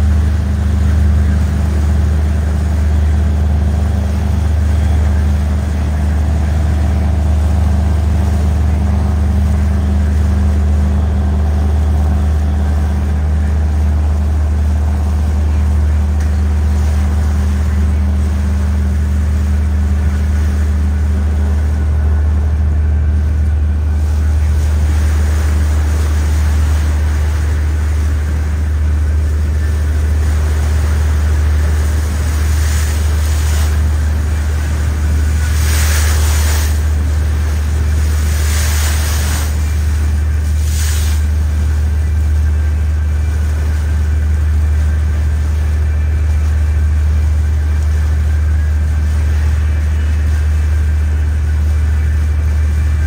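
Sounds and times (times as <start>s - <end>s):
boat engine droning: 0.0s - 53.0s.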